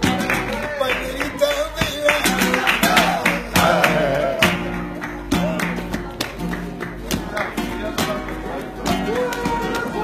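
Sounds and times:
acoustic flamenco guitar: 0.0 - 10.0
person singing: 1.8 - 4.7.

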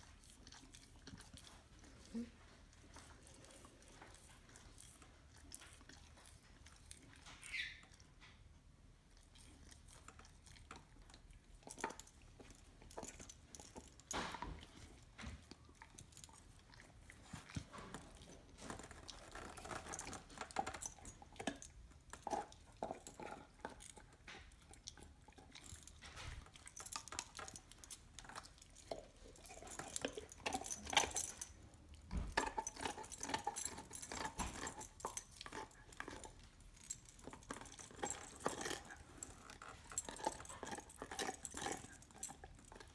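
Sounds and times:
dog gnawing on bone: 0.0 - 42.9
collar tag jingling: 11.6 - 42.9.

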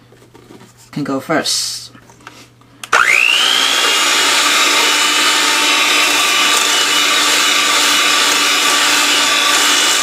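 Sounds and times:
electric hand mixer whine: 2.9 - 10.0.

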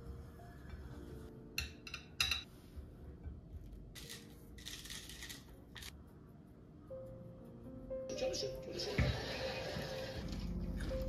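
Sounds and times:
faint background music: 0.0 - 11.0
tableware clinking on a plate: 1.6 - 2.5.

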